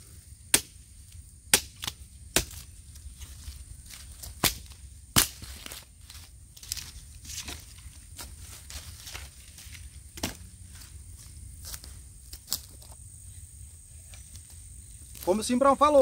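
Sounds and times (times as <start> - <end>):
sharp snaps and cracks: 0.5 - 10.4.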